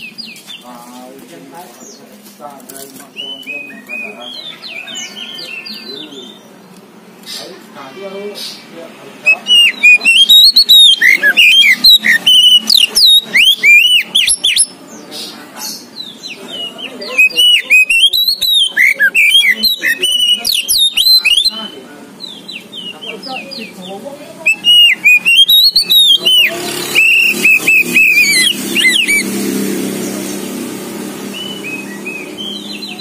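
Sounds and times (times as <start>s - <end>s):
bird singing whistled phrases: 9.3s - 14.7s, 16.6s - 21.8s, 24.4s - 29.3s, 31.3s - 33.0s.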